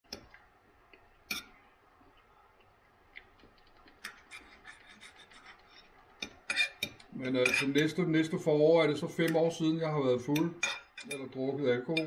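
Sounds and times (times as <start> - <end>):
cutlery clinking on plate: 1.3 - 1.6, 6.2 - 8.0.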